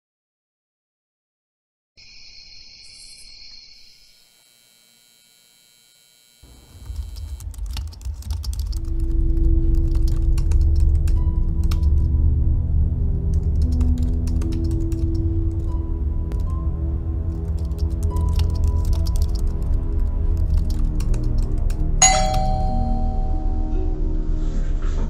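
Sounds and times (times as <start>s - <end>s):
typing on computer keyboard: 6.8s - 12.1s, 13.3s - 16.5s, 17.3s - 22.4s
high-pitched steady tone: 22.0s - 24.1s
steady low tone: 22.0s - 24.8s.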